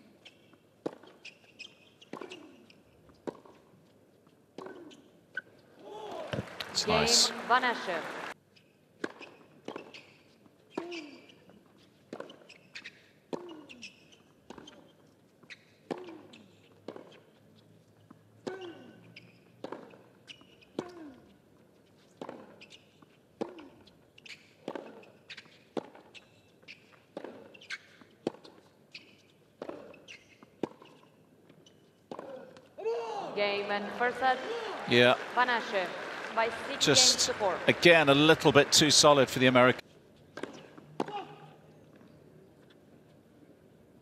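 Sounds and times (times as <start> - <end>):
tennis ball bouncing: 0.2 - 3.9, 4.5 - 5.5, 9.0 - 17.4, 18.0 - 21.4, 22.0 - 32.7, 40.3 - 42.1
rackets hitting tennis ball: 0.3 - 3.7, 9.0 - 17.3, 18.4 - 21.4, 22.0 - 32.9, 40.3 - 41.4.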